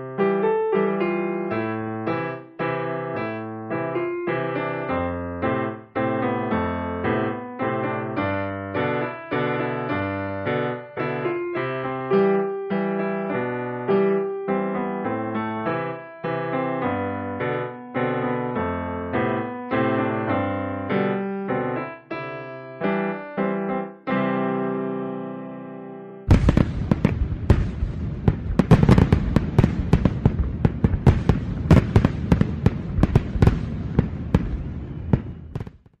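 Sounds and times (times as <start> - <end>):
slow piano melody: 0.0 - 35.7
fireworks bangs and crackling: 26.3 - 36.0.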